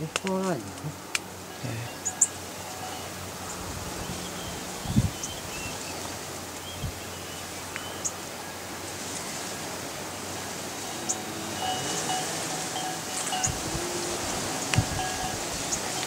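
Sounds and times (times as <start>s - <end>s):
wind rustling leaves: 0.0s - 16.0s
high bird chirps: 1.9s - 6.0s.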